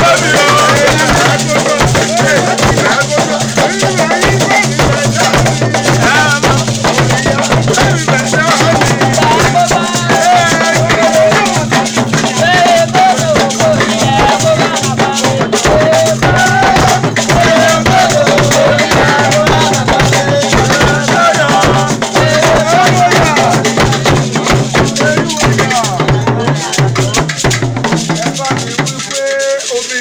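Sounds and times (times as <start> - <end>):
drums: 0.0 - 30.0
rattles shaken: 0.0 - 30.0
voices singing: 0.0 - 30.0.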